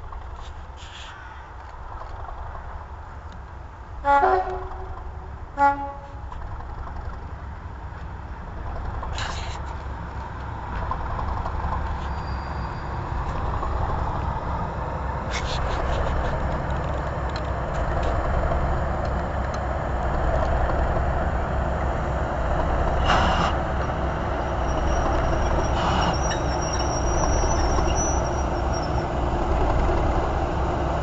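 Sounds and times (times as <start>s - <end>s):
coaches rolling on rails: 0.0s - 31.0s
diesel locomotive engine: 0.0s - 31.0s
thin high squeal: 12.0s - 13.0s, 24.4s - 29.1s.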